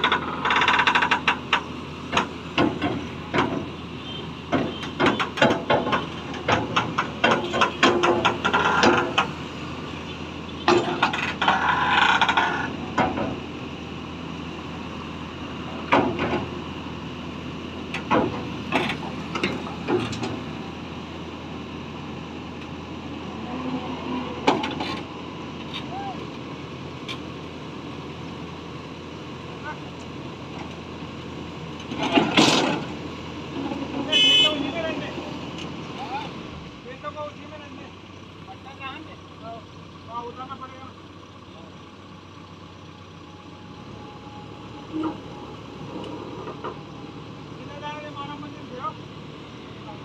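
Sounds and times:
metallic clanks and rattles: 0:00.0 - 0:03.7, 0:04.5 - 0:09.4, 0:10.6 - 0:13.4, 0:15.8 - 0:16.6, 0:17.9 - 0:20.5, 0:31.8 - 0:33.0
diesel engine running: 0:00.0 - 0:50.0.

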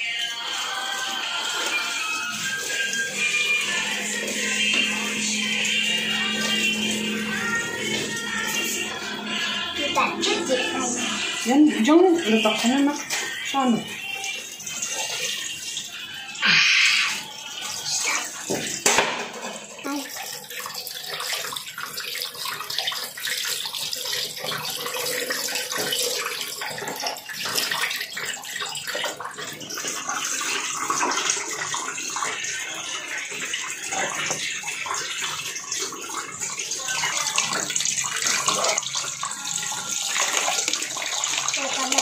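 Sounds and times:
leaves being rinsed: 0:00.0 - 0:42.0
tap water splashing into steel bowl: 0:12.2 - 0:13.5, 0:18.4 - 0:20.2, 0:33.4 - 0:42.0.

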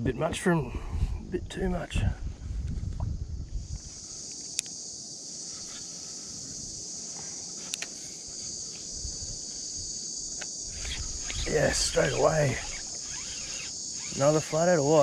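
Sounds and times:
high-pitched insect chorus: 0:00.0 - 0:15.0
sharp clicks: 0:04.3 - 0:04.8, 0:10.3 - 0:14.4.

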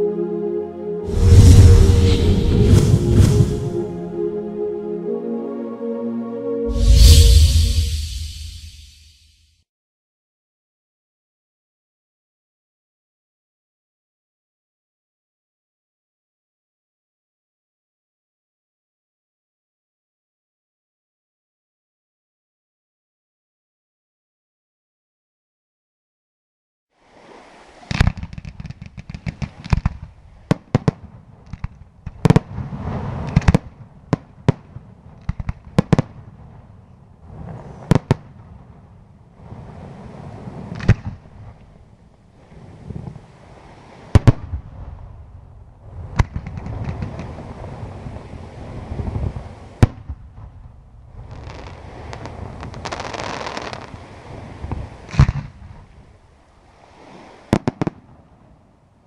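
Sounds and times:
firework pops and crackling: 0:27.9 - 0:32.5, 0:46.2 - 0:47.4.

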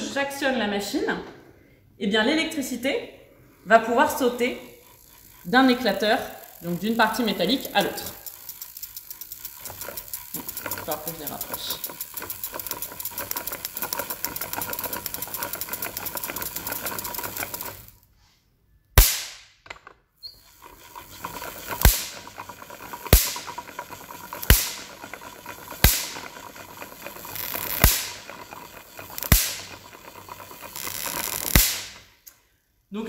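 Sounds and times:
electrostatic machine spark crackle: 0:04.9 - 0:18.0, 0:20.4 - 0:32.2
sharp spark cracks: 0:19.0 - 0:19.6, 0:25.8 - 0:26.1, 0:27.4 - 0:28.2, 0:29.2 - 0:29.6, 0:30.8 - 0:32.2.

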